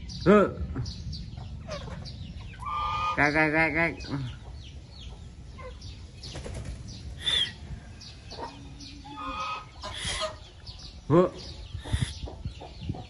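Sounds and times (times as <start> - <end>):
steady low rumble: 0.0 - 13.0
geese and chickens calling: 1.4 - 6.1, 7.2 - 13.0.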